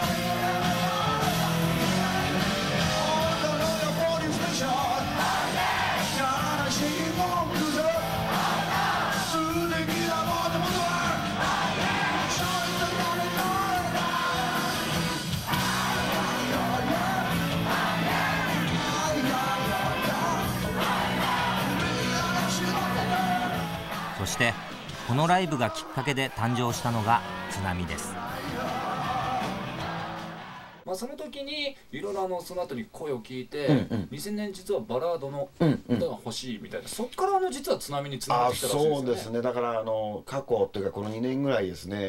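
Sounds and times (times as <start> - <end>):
rock band playing: 0.0 - 26.0, 26.6 - 30.6.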